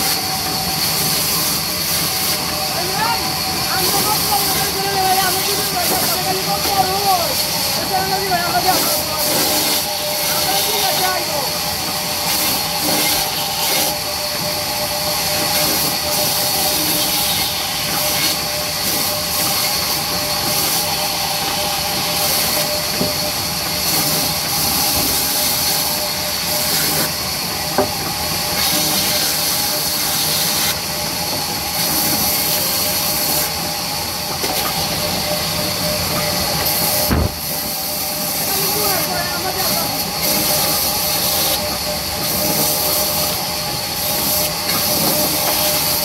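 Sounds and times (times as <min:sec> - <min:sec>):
sharp knock: 0:37.1 - 0:37.4.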